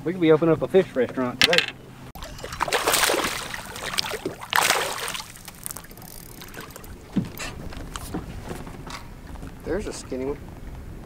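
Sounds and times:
fish splashing in water: 0:02.2 - 0:07.5.

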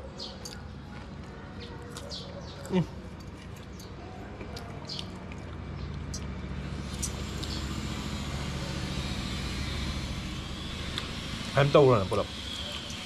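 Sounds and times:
vehicle engine running: 0:05.6 - 0:13.0.

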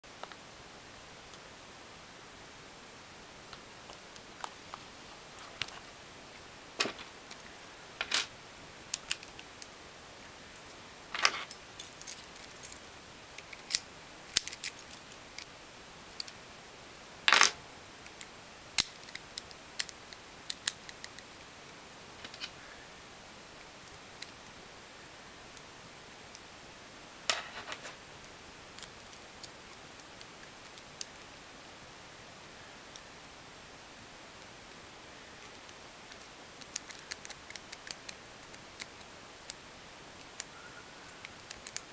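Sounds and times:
metallic lock clicks and clinks: 0:13.6 - 0:15.5.

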